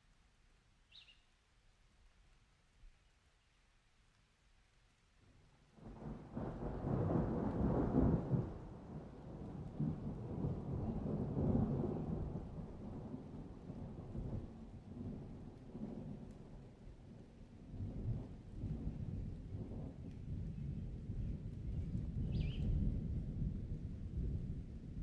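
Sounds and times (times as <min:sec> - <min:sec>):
rolling thunder: 0:05.8 - 0:16.3, 0:17.8 - 0:25.0.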